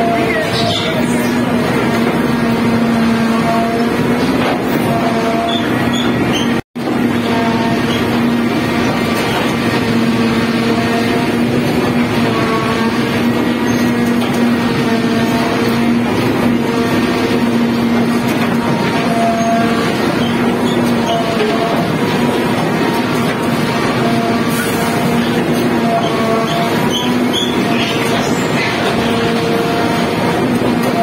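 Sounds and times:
tunnel mucking machine running: 0.0s - 31.0s.

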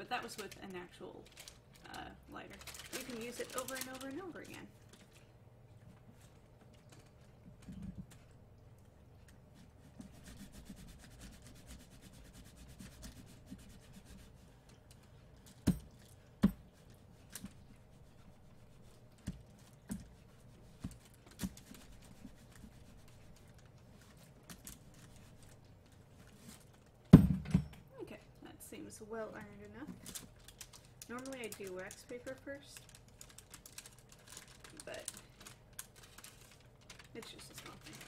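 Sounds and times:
iron rubbing over paper: 9.6s - 14.6s.

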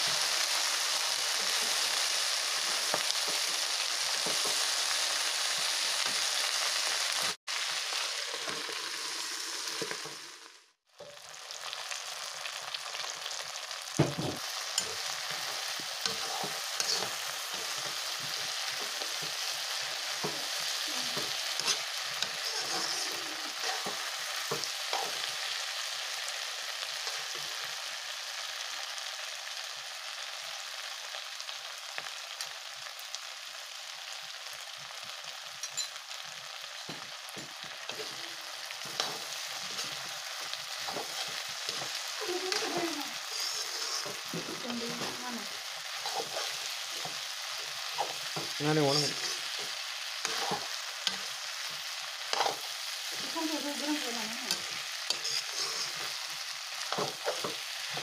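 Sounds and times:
food sizzling in a wok: 0.0s - 58.0s
steel spoon scraping a pan: 14.6s - 20.4s, 21.1s - 25.4s, 38.8s - 45.0s, 45.9s - 47.2s, 47.8s - 51.5s, 52.3s - 52.7s, 54.5s - 58.0s.

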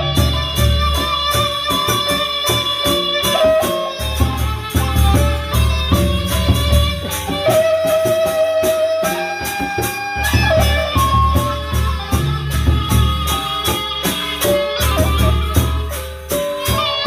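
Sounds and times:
big drums beating: 0.0s - 17.0s
rapid cymbal clashes: 0.0s - 17.0s
ringing gong and metallophone: 0.0s - 17.0s.

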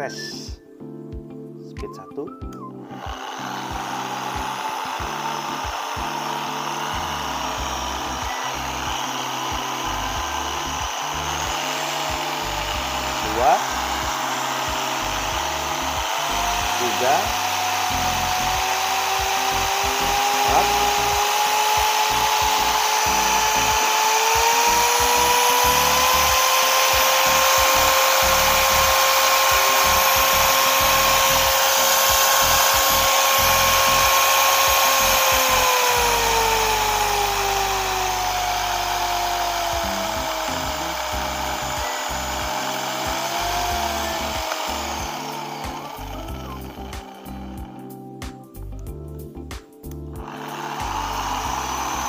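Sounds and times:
polisher motor whine: 2.8s - 48.0s, 50.2s - 52.0s.

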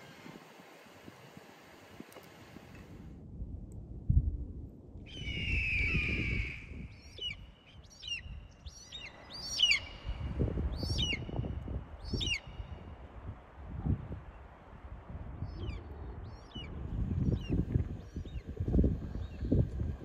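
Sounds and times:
wild bird calling: 5.1s - 10.2s.

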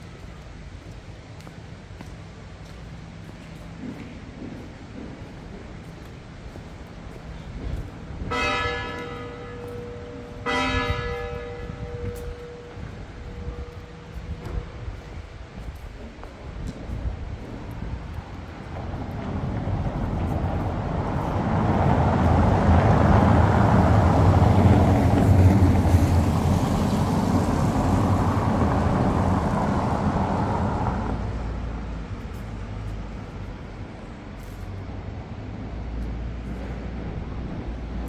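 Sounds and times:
passing vehicle engine: 18.7s - 33.7s.

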